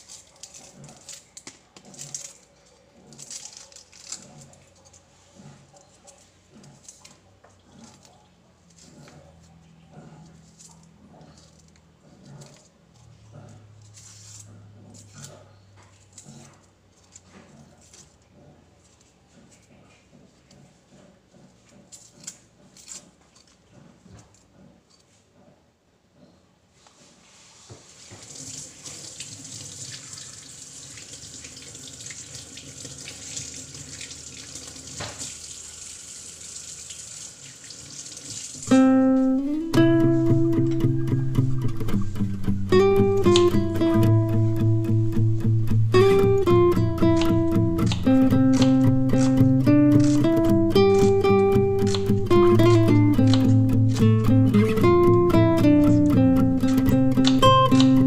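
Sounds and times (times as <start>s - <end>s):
knife scraping and clicking: 21.9s - 23.6s, 41.9s - 44.0s, 46.0s - 58.0s
onion rinsed under water: 27.8s - 40.3s
tap running into sink: 31.5s - 35.5s
guitar music: 38.7s - 58.0s.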